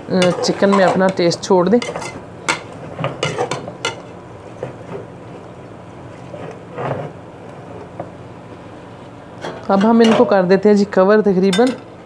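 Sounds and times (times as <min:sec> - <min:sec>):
low frying hiss: 0:00.0 - 0:12.0
metal spatula clinking on pot: 0:11.5 - 0:11.8.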